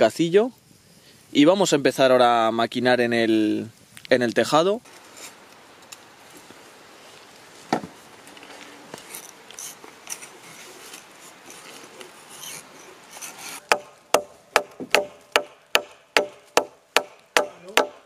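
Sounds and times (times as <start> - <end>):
wood scraping and handling: 7.5 - 13.8
tool striking wood: 13.6 - 18.0
sharp knock on wood: 13.7 - 18.0.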